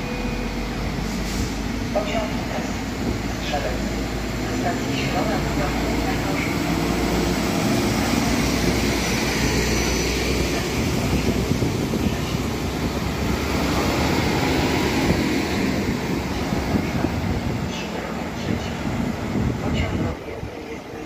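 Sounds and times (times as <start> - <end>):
diesel engine rumbling: 0.0 - 21.0.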